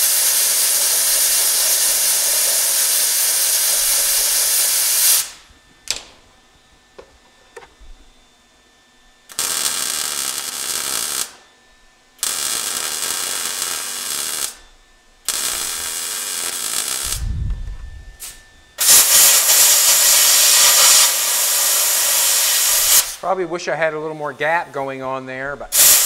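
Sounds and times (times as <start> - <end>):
air blow gun hissing: 0.0 - 5.4, 15.3 - 23.3, 25.7 - 26.0
welder crackling: 0.0 - 6.3, 9.3 - 11.4, 12.2 - 14.6, 15.2 - 23.5, 25.7 - 26.0.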